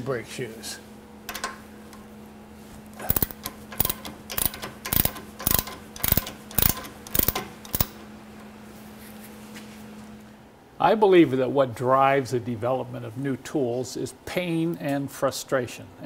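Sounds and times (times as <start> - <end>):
ratchet wrench clicking: 3.1 - 8.0.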